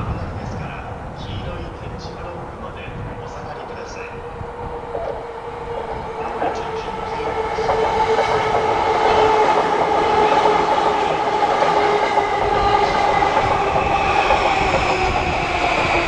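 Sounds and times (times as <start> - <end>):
electric train passing: 0.0 - 16.0
wheels clicking over rails: 4.9 - 16.0.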